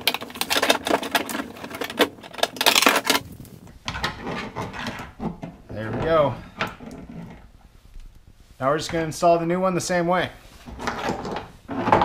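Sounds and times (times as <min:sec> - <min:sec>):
wiring harness rattling on metal: 0:00.0 - 0:07.4.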